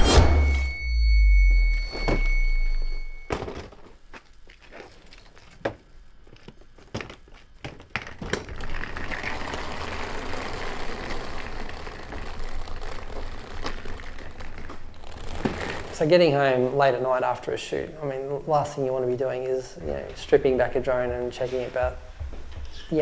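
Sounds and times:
equipment case wheels rolling: 3.4 - 16.1.

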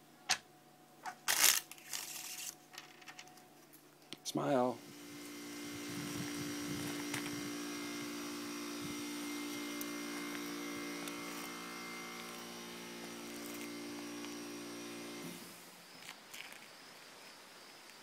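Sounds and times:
hum of held tones: 4.2 - 15.4.

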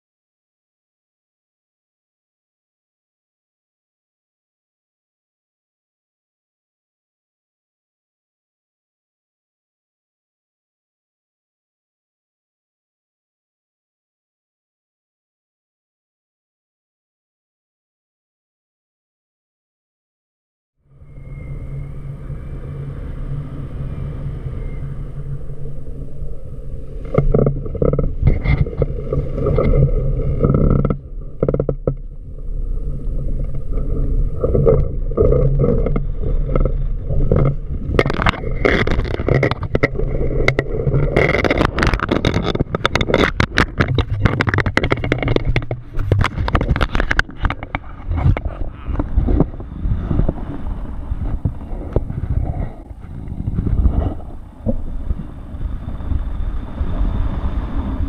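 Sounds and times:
wind rushing over microphone: 20.9 - 58.0
paraglider canopy flapping: 33.8 - 54.5.

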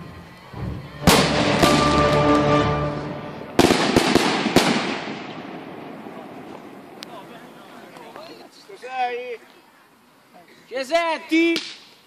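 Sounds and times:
fireworks bangs with crackling: 1.0 - 2.6, 3.4 - 8.1.

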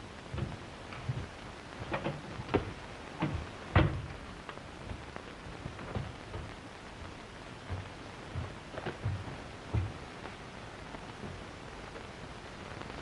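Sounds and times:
film soundtrack hiss and crackle: 0.0 - 13.0
knocks and clicks: 0.3 - 5.0.

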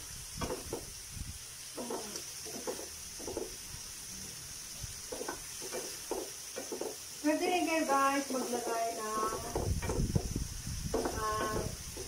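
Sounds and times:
shrimp sizzling in a frying pan: 0.0 - 12.0
metal tongs scraping a pan: 1.8 - 3.0, 5.1 - 10.0.

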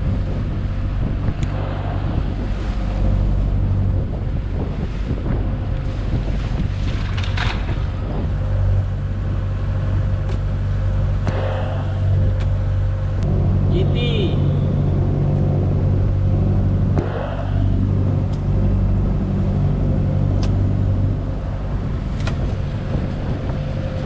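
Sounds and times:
wind on microphone: 0.0 - 13.7, 14.6 - 24.0
boat engine humming: 0.0 - 24.0.

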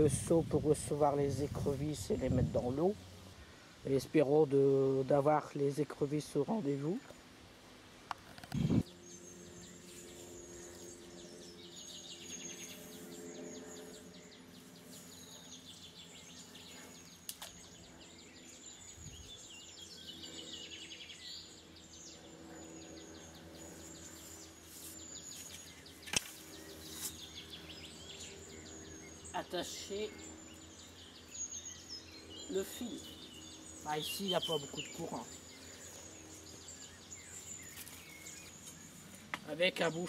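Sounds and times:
birds singing and trilling: 0.0 - 40.0.

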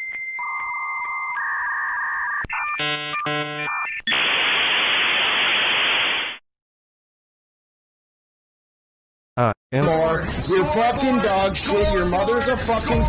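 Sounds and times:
modem chirping tones: 0.0 - 4.5.

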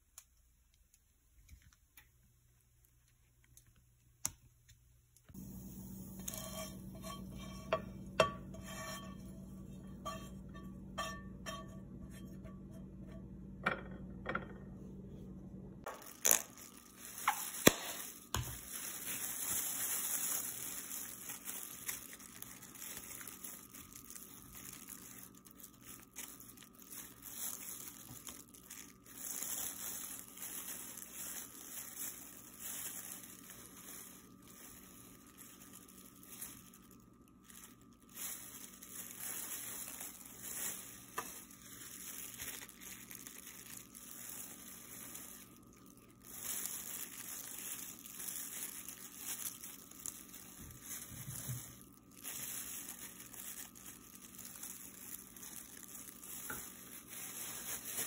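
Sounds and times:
low hum: 5.4 - 15.9
sauce scraping on plate: 6.1 - 10.5.

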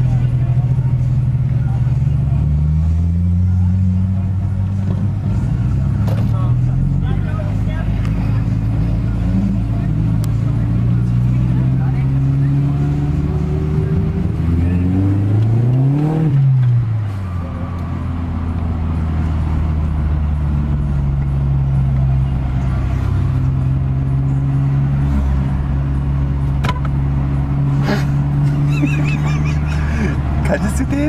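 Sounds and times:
car engine revving: 0.0 - 31.0.

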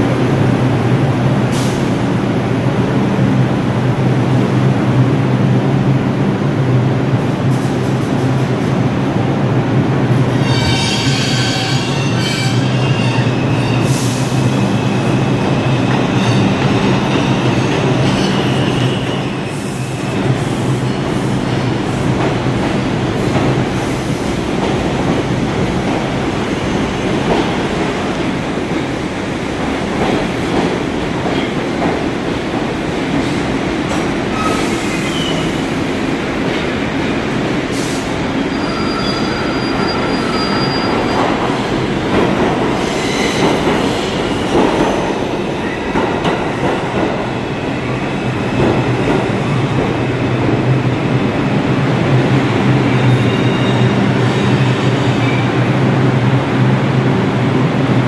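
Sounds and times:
subway train rumbling: 0.0 - 58.0
wheel and brake squeals: 38.5 - 41.3.

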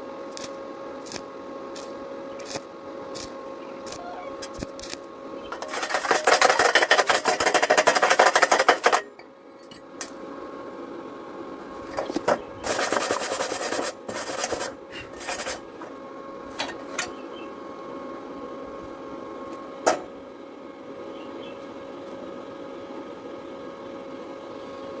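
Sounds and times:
wire brush scrubbing steel: 3.9 - 9.0, 12.2 - 15.7.

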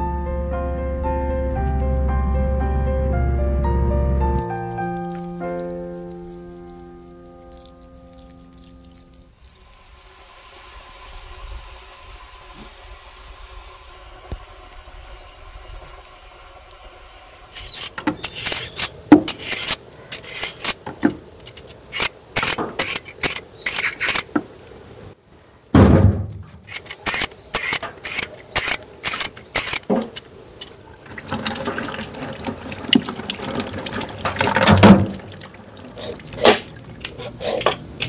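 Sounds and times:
peeler scraping sweet potato: 17.6 - 20.8, 21.5 - 24.3, 26.7 - 30.2, 36.0 - 37.8.

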